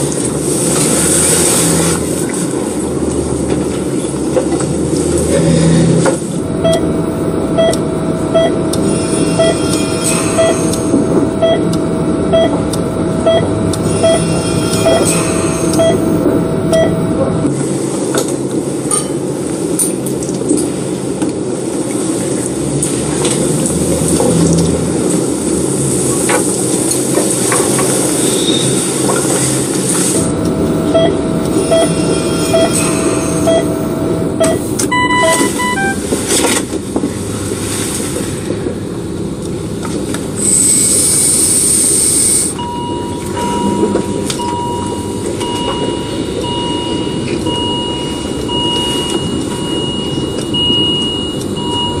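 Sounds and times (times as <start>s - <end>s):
patient monitor beeping: 6.3s - 17.4s, 30.2s - 36.1s, 42.6s - 52.0s
electronic beeps: 6.6s - 17.1s, 30.3s - 36.0s.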